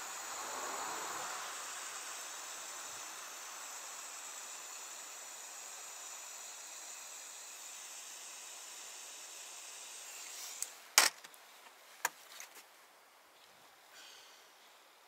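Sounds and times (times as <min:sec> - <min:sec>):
gas torch hissing: 0:00.0 - 0:11.1.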